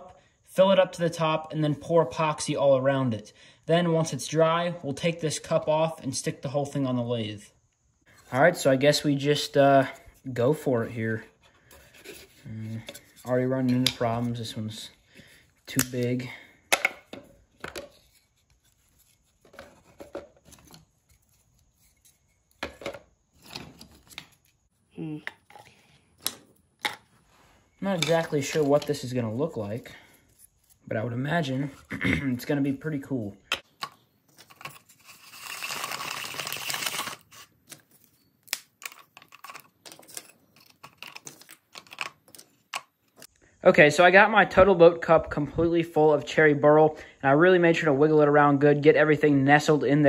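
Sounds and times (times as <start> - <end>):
wood chunks clattering in plastic cup: 38.8 - 42.4.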